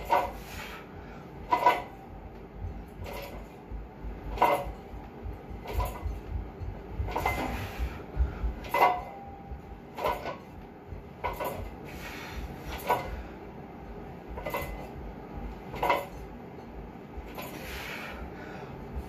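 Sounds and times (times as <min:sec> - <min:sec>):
barbell plates clanking: 0:00.0 - 0:00.6, 0:01.5 - 0:02.1, 0:02.9 - 0:03.6, 0:04.3 - 0:04.9, 0:05.6 - 0:08.0, 0:08.6 - 0:10.6, 0:11.2 - 0:12.0, 0:12.6 - 0:13.2, 0:14.3 - 0:15.0, 0:15.7 - 0:16.3.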